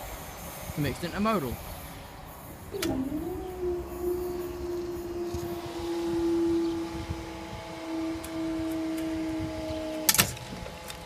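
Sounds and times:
level crossing alarm tone: 2.8s - 9.4s.

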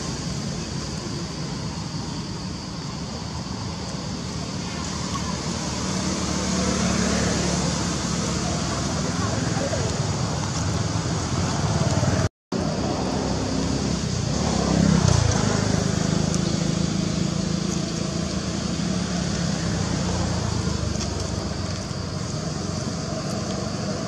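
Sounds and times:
traffic rumble: 0.0s - 24.0s
vehicle passing by: 4.5s - 24.0s.

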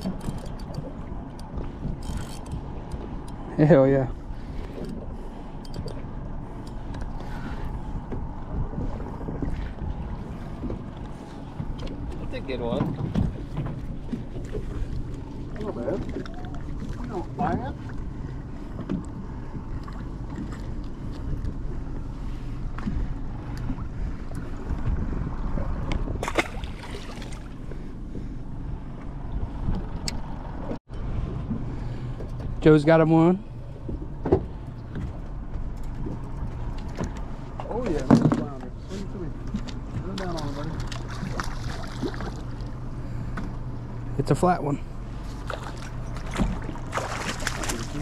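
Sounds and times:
boat engine rumble: 0.0s - 48.0s
wind buffeting the microphone: 6.1s - 32.6s.

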